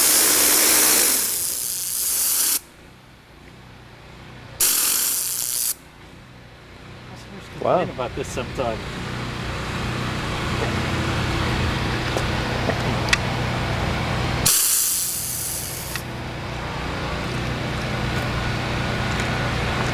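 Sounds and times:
loud hiss of spray: 0:00.0 - 0:02.7, 0:04.6 - 0:05.8, 0:14.4 - 0:16.0
pressure washer humming: 0:00.0 - 0:03.0, 0:04.3 - 0:05.8, 0:06.8 - 0:19.9.

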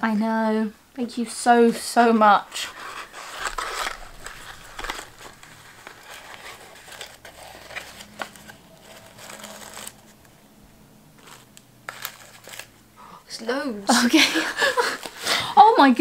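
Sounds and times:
paper and card rustling: 0:01.6 - 0:10.4, 0:11.2 - 0:12.8, 0:13.9 - 0:15.8.

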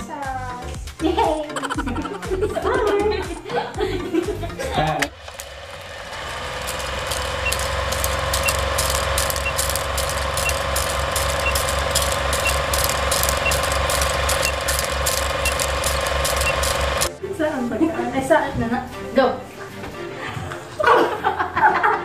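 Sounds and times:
film projector clattering: 0:04.9 - 0:17.1
short high beeps: 0:07.4 - 0:17.1.

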